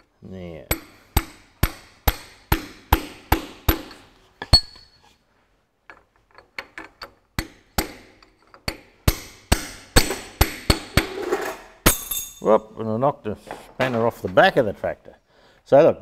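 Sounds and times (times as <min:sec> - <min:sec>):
chain clinking: 0:11.9 - 0:12.6.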